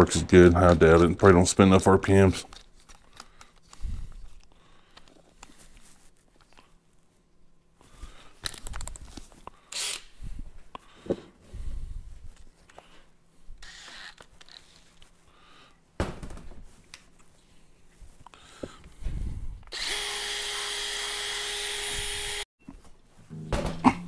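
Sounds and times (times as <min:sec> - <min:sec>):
cordless drill with disc running: 0:19.7 - 0:22.5.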